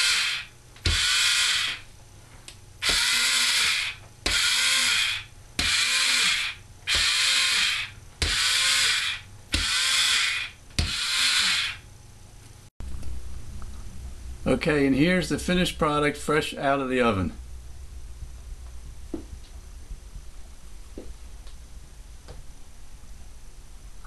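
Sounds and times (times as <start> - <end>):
cookie press motor whirring: 0.0 - 1.8, 2.8 - 11.8.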